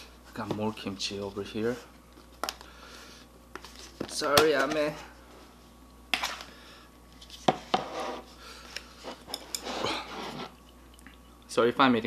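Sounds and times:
scraping on dishes: 7.6 - 8.3, 9.0 - 10.6.

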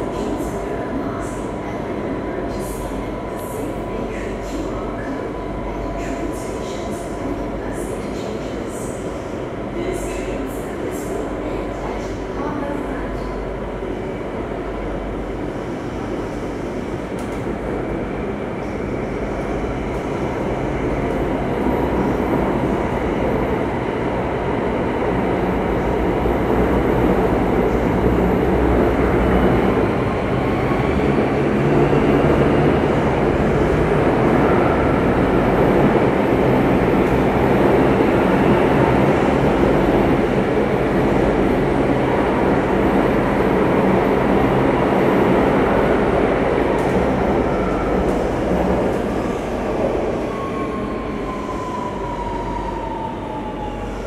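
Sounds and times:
train wheels rumbling on rails: 15.2 - 54.0.

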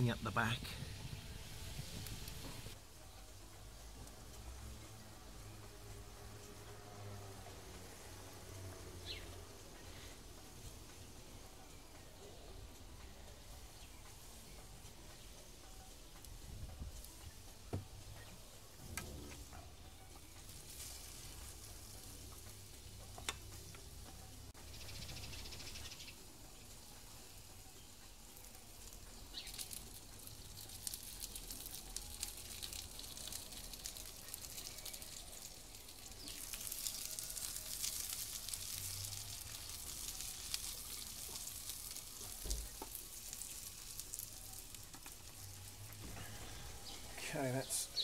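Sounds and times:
food sizzling in a pan: 20.3 - 48.0.

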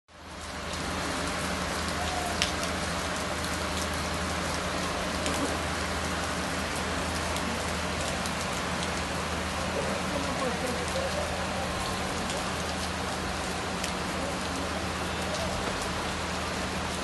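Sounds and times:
heavy rain on wet street: 0.1 - 17.0.

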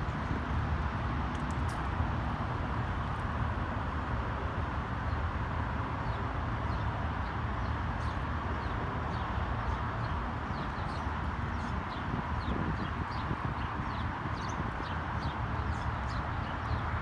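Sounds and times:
small birds chirping: 6.0 - 17.0.

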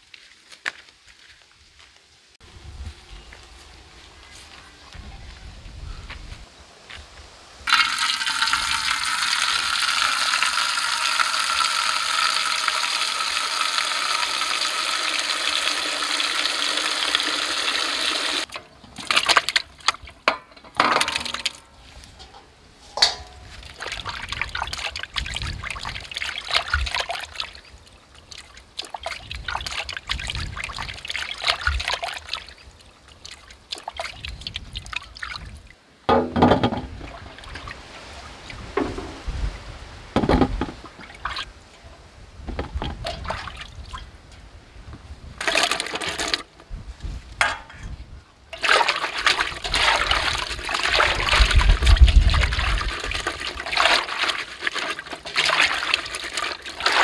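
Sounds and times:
water pouring into metal pot: 7.7 - 19.6, 45.4 - 46.5, 48.6 - 57.0
water splashing and sloshing: 7.7 - 44.2, 48.5 - 57.0.

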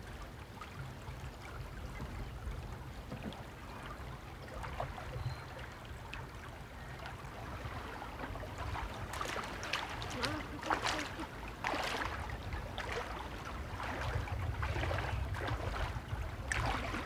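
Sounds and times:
steady low rumble: 11.3 - 17.0.

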